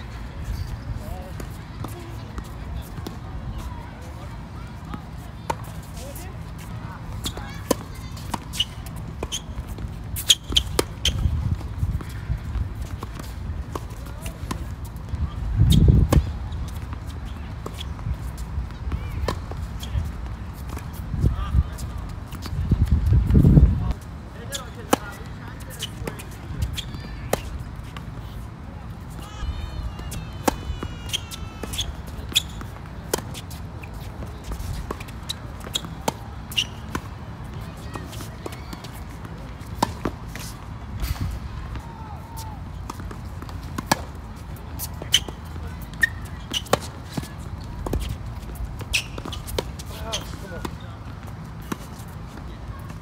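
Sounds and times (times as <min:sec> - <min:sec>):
tennis racket hitting ball: 0:30.0 - 0:37.1, 0:42.8 - 0:44.2, 0:44.8 - 0:52.1.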